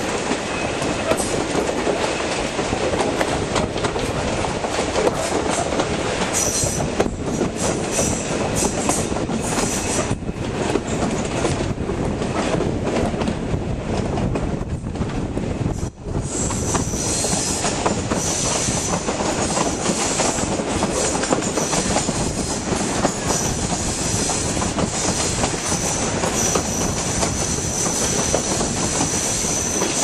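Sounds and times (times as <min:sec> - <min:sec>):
train wheels rumbling on rails: 0:00.0 - 0:30.0
high wheel squeal: 0:16.2 - 0:20.4, 0:21.0 - 0:30.0.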